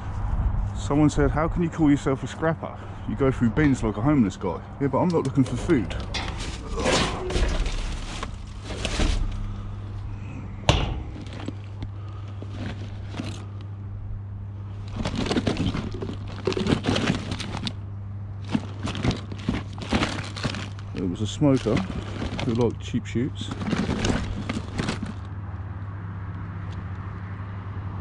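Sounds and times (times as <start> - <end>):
steady low hum: 0.0 - 26.0
rustling and crinkling of handbag: 5.2 - 13.8, 14.7 - 17.8, 18.4 - 25.4.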